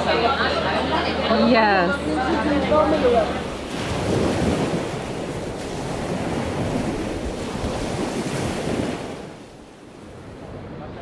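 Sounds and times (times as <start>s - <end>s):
sea waves washing in: 0.0s - 11.0s
wind buffeting microphone: 2.5s - 11.0s.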